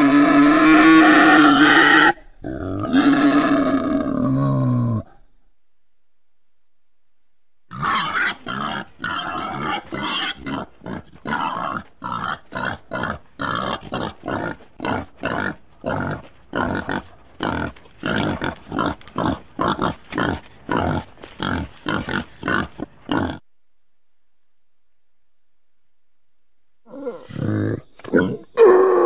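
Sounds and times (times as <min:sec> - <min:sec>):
boar grunting: 0:00.0 - 0:05.2, 0:07.7 - 0:23.5, 0:26.9 - 0:29.0.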